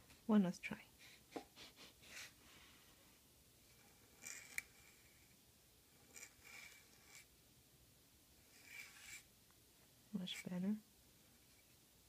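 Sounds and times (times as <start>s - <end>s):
pen nib scratching paper: 3.7s - 5.2s, 5.9s - 7.3s, 8.5s - 9.3s.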